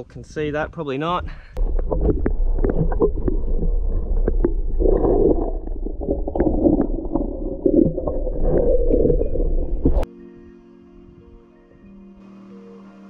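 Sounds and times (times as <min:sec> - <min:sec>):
underwater rumble of moving water: 0:01.6 - 0:10.0.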